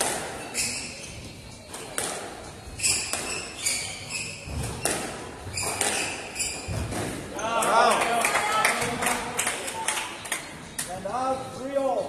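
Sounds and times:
court shoes squeaking on wood: 0.0s - 7.6s
squash ball cracking off walls: 4.5s - 7.3s.

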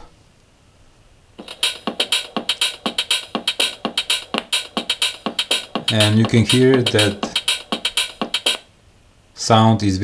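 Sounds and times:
electronic dance music from small speaker: 1.4s - 8.7s.

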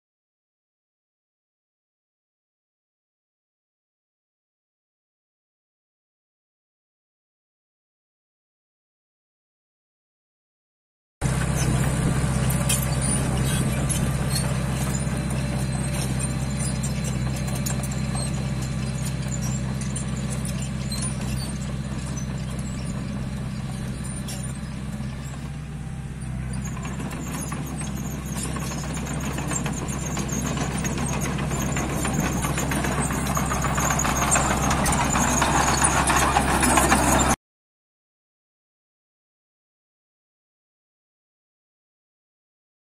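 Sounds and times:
diesel engine running: 11.2s - 37.4s
steel tracks clattering: 26.8s - 37.4s.

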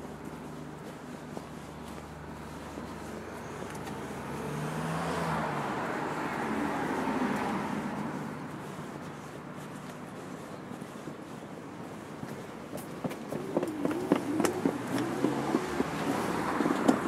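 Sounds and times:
car driving past: 2.4s - 8.5s, 13.4s - 17.0s.

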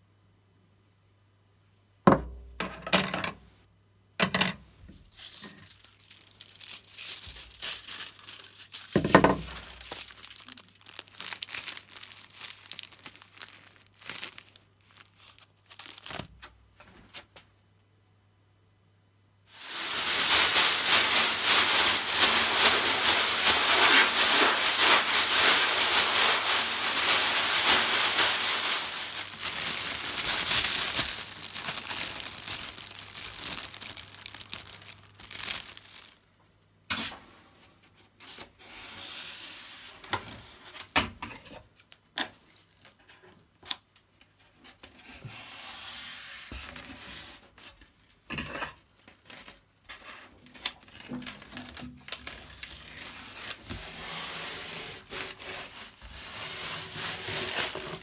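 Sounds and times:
aluminium foil crinkling: 5.0s - 16.6s, 19.5s - 36.3s, 42.3s - 43.9s, 48.9s - 58.0s.

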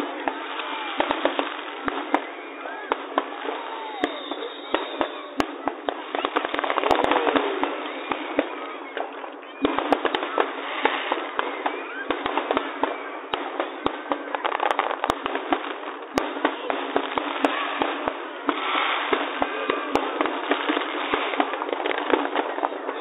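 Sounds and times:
distant firework bangs: 0.0s - 23.0s
firework bursts bangs: 0.0s - 23.0s.

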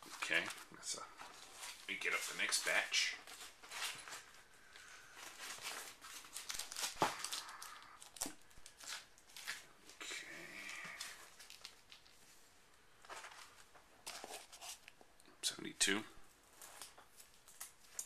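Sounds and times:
plastic bags crinkling: 5.1s - 9.7s, 10.7s - 12.2s.

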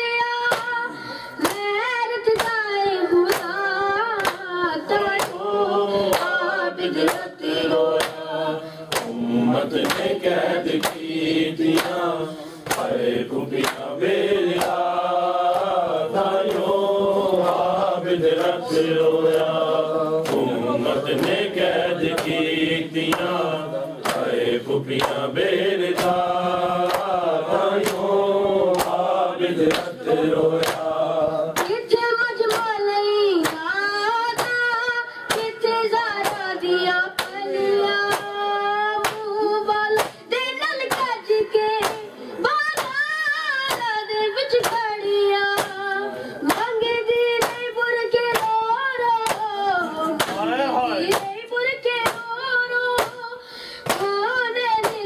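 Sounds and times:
hands slapping chests: 0.5s - 0.8s, 1.4s - 2.6s, 3.2s - 3.6s, 4.2s - 8.3s, 8.9s - 32.8s, 33.4s - 33.7s, 34.3s - 34.7s, 35.3s - 40.2s, 40.8s - 41.2s, 41.8s - 42.1s, 42.7s - 44.9s, 45.5s - 46.8s, 47.4s - 51.4s, 52.0s - 52.3s, 53.0s - 53.2s, 53.8s - 54.2s, 54.8s - 55.0s
men chanting a lament: 3.7s - 31.9s, 35.2s - 39.2s, 44.6s - 46.6s, 49.2s - 51.4s.

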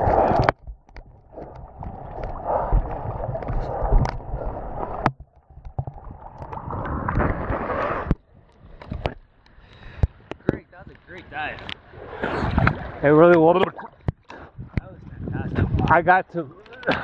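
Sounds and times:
seawater sloshing and lapping: 0.0s - 10.1s.

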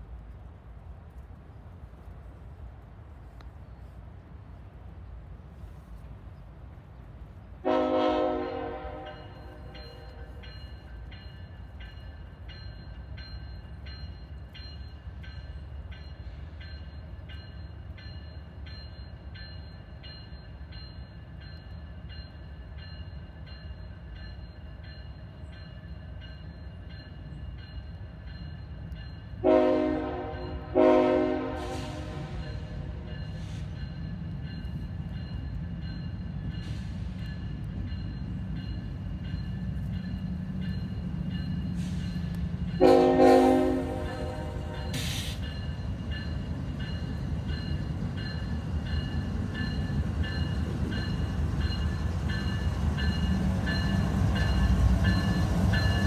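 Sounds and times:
train rumble: 0.0s - 56.0s
locomotive horn blasts: 7.6s - 10.3s, 29.4s - 33.1s, 42.8s - 45.2s.

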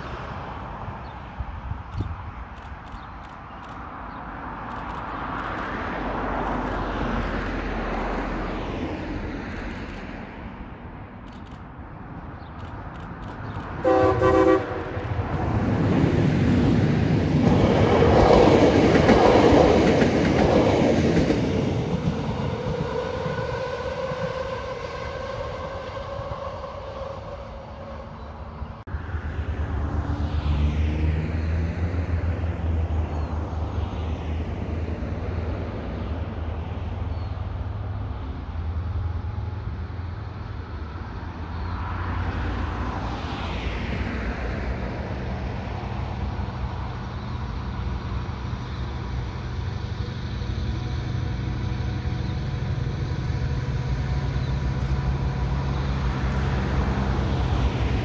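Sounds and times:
low throb of diesel locomotives: 0.0s - 58.0s
rushing noise: 0.0s - 58.0s
diesel locomotive horn blast: 13.8s - 15.4s.

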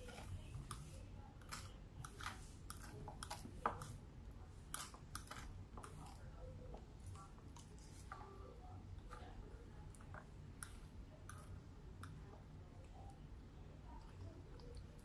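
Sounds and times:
chewing: 0.0s - 4.0s, 4.6s - 8.2s.

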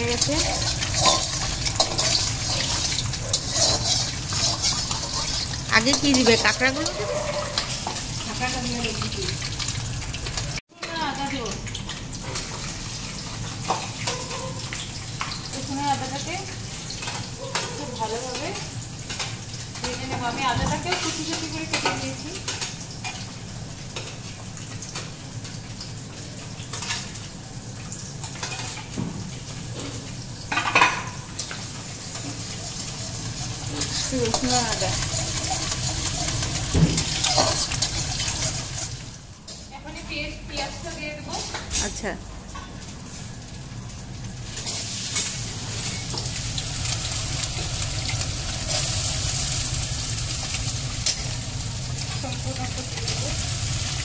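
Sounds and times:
oil sizzling in a pan: 0.0s - 41.7s, 42.4s - 54.0s
metal spatula scraping and clinking: 0.2s - 8.0s.

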